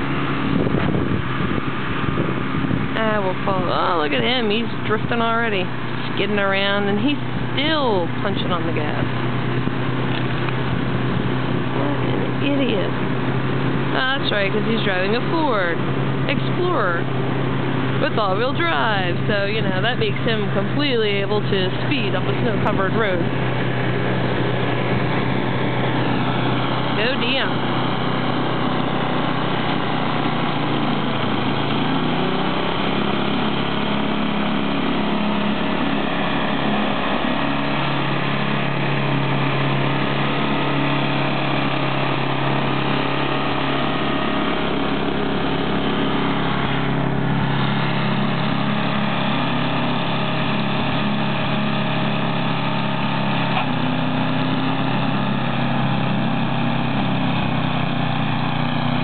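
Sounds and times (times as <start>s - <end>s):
snowblower engine running: 0.0s - 59.0s.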